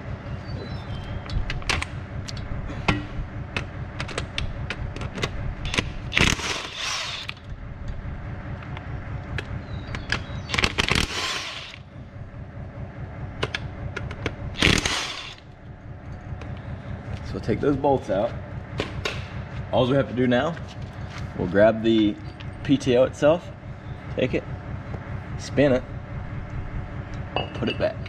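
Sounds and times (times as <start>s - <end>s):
steady low hum: 0.0s - 28.0s
impact wrench rattling: 2.9s - 7.5s, 9.9s - 11.8s, 13.4s - 15.4s.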